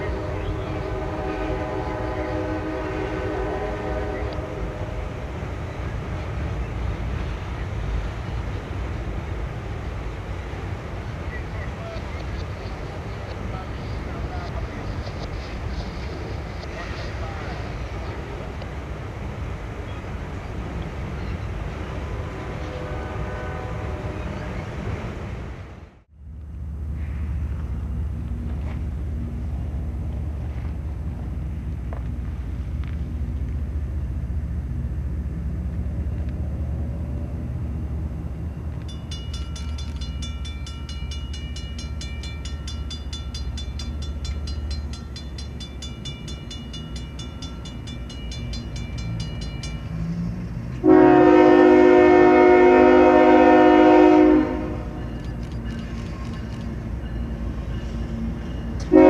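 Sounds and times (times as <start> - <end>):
air horn blast: 0.0 - 5.0, 22.2 - 24.2, 50.8 - 55.0
diesel locomotive engine rumbling: 0.0 - 59.0
bell ringing: 38.9 - 50.2.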